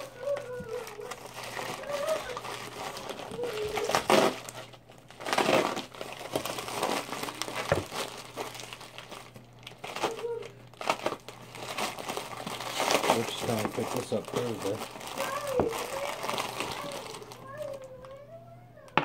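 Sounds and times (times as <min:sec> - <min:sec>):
paper envelope crinkling: 0:00.0 - 0:18.2.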